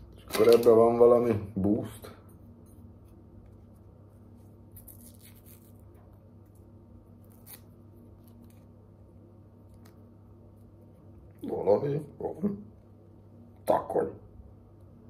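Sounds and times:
low steady hum: 0.0 - 15.0
packet crinkling: 4.8 - 5.9.

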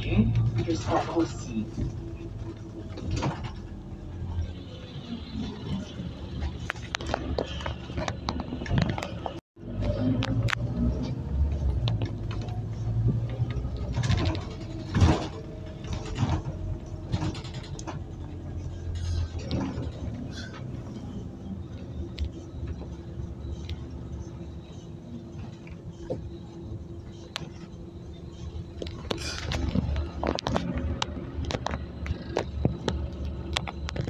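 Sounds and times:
bus engine droning: 0.0 - 34.0
rattles and knocks from bus body: 0.4 - 4.1, 5.4 - 10.0, 11.0 - 21.1.

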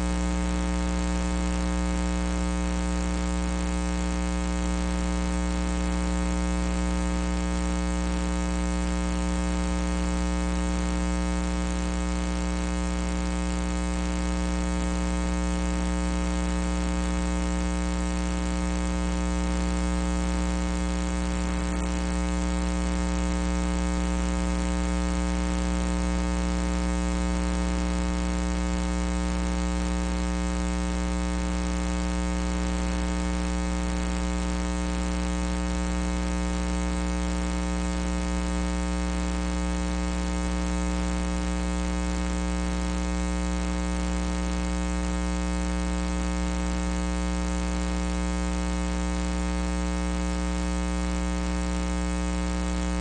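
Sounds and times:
electrical mains hum: 20.6 - 22.4.

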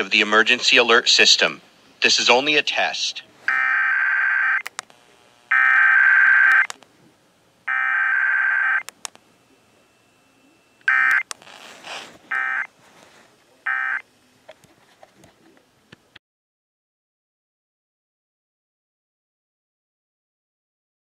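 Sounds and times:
faint radio hiss: 0.0 - 16.2
harsh buzzing data bursts: 3.5 - 6.8, 7.6 - 12.7, 13.7 - 14.0.

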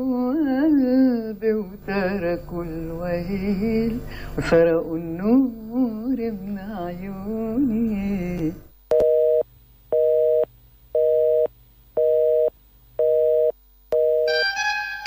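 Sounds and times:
telephone busy tone beeps: 10.0 - 14.4
music: 14.3 - 15.0.

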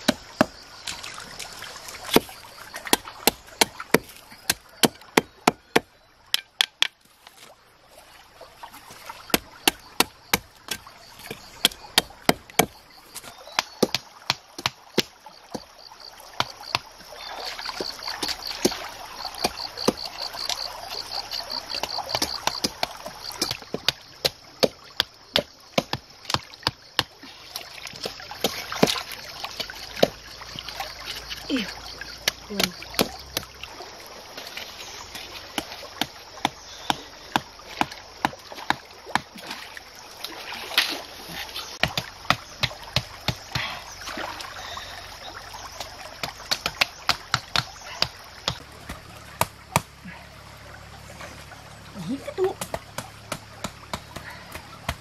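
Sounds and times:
stone pounding bamboo stakes: 0.0 - 0.6, 2.1 - 7.0, 9.3 - 15.7, 16.4 - 16.9, 21.7 - 27.2, 41.7 - 43.8, 46.2 - 50.0, 52.5 - 55.0
shallow stream water running: 0.0 - 55.0.

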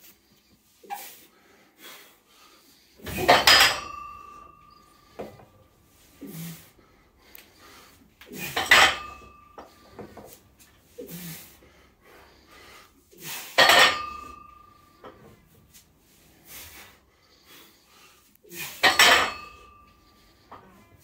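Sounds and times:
barbell plates clanking on floor: 3.0 - 5.5, 8.4 - 10.2, 13.6 - 15.4, 18.8 - 19.8.

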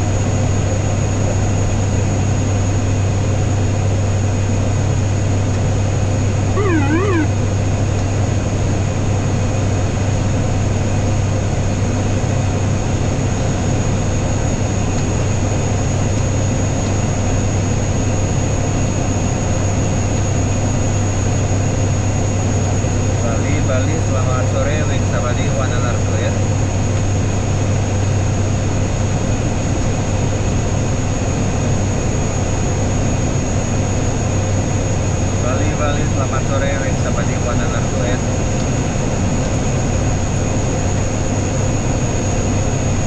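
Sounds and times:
propeller engines droning: 1.7 - 9.3
warbling tone: 6.6 - 7.4.

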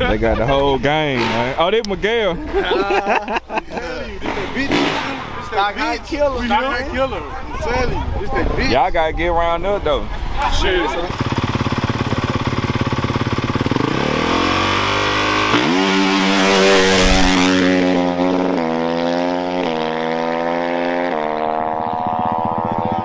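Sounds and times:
dirt bike engine revving: 4.2 - 5.8, 11.0 - 23.0.

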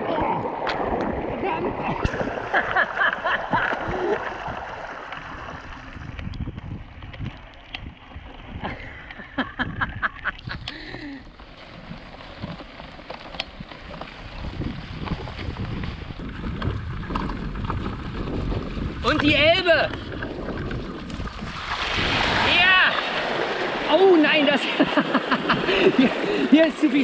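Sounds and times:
bike wheel splashing through water: 9.6 - 27.0
bike rattling over rough grass: 10.9 - 21.6.

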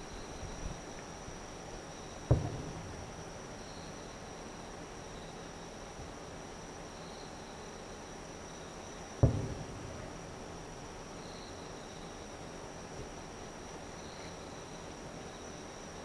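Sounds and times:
insect trill: 0.0 - 16.0
distant firework boom: 2.3 - 3.2, 9.2 - 10.3.

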